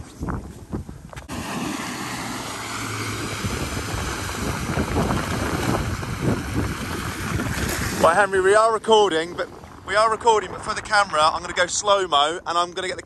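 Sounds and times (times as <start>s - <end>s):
wind buffeting microphone: 0.0s - 13.0s
outboard engines humming: 1.3s - 10.0s
rushing sea water: 1.3s - 11.8s.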